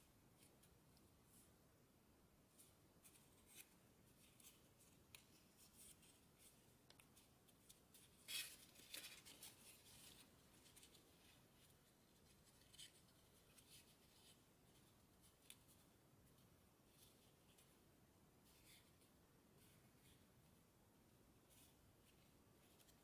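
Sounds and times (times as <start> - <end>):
paper crinkling while folded: 3.0 - 15.8.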